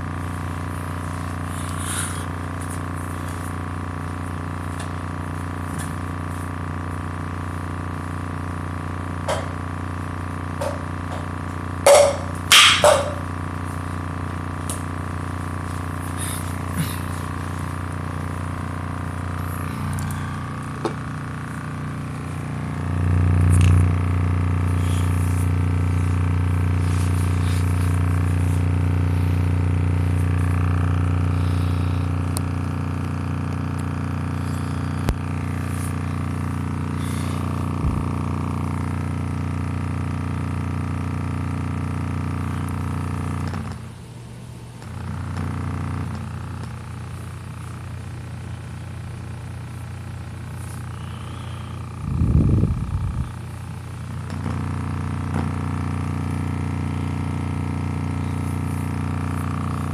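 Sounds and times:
speaker playing low bass tone: 0:09.2 - 0:39.2, 0:50.6 - 0:59.9.

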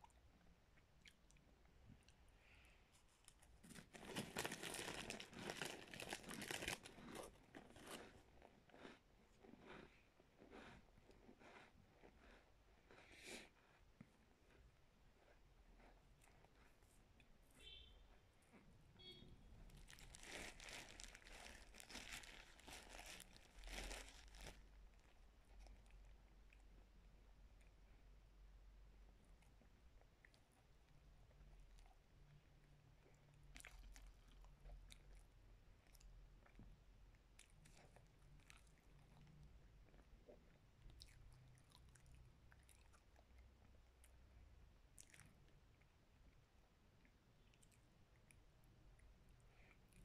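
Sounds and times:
chewing with crunching: 0:03.2 - 0:17.3, 0:29.2 - 0:50.0.

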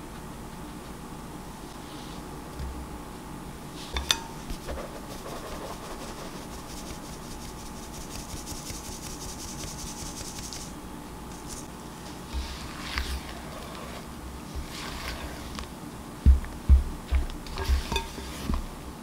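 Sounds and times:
flour sifting through mesh sieve: 0:01.8 - 0:02.3, 0:03.7 - 0:15.7, 0:17.4 - 0:18.7.

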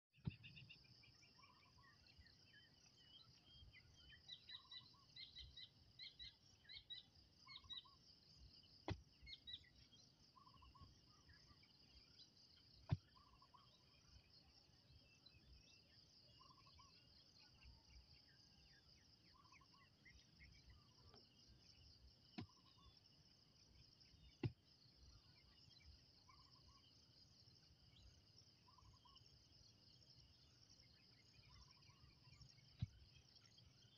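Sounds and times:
birds chirping: 0:00.2 - 0:23.0
insects chirring: 0:00.2 - 0:33.9.

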